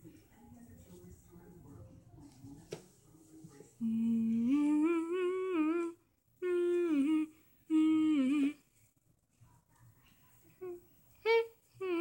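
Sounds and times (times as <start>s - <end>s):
person humming: 3.8s - 8.7s, 10.6s - 12.0s.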